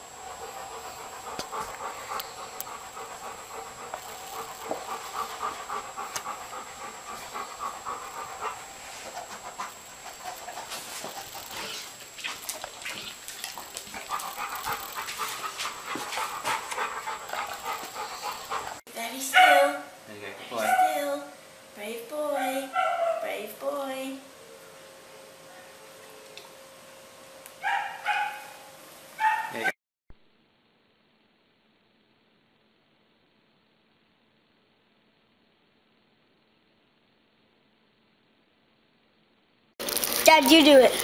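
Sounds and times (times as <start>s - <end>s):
dog panting: 0.0s - 19.8s.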